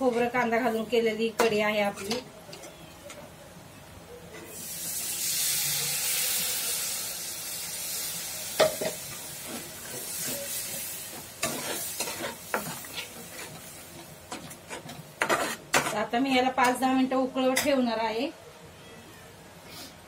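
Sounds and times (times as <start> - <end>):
water sizzling in hot oil: 4.5 - 15.6
metal spatula scraping a pan: 8.6 - 16.1.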